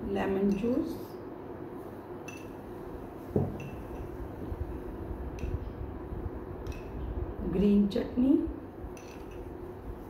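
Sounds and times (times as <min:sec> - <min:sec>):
steady low hum: 0:00.0 - 0:10.0
glass bowls and spoon clinking: 0:02.3 - 0:02.6, 0:03.5 - 0:04.1, 0:09.0 - 0:09.5
knock on table: 0:03.4 - 0:03.6.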